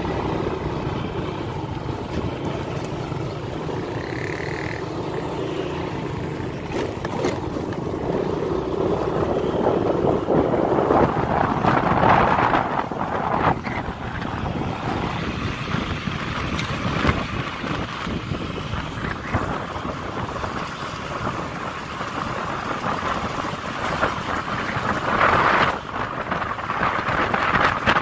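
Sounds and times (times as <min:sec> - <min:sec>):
small motorbike engine running: 0:00.0 - 0:12.6
wind buffeting microphone: 0:05.9 - 0:28.0.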